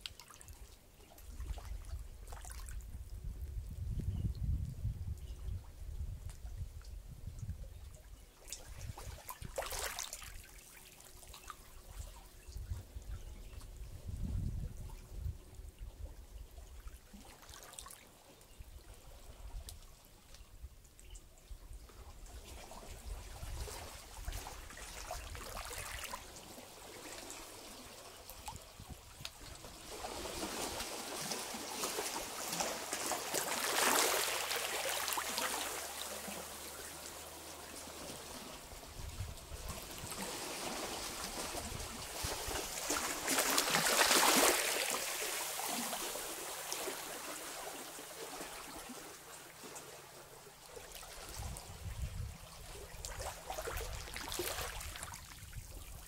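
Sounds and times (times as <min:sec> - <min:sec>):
waves washing over rocks: 0:39.8 - 0:48.3.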